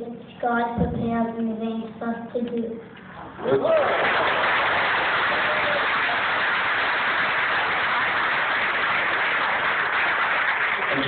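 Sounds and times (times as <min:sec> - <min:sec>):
loud static hiss: 0:03.0 - 0:11.0.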